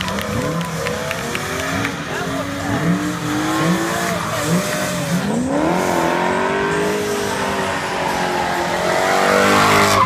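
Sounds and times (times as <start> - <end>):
car engines revving hard: 0.0 - 10.0
tyres screeching: 2.5 - 10.0.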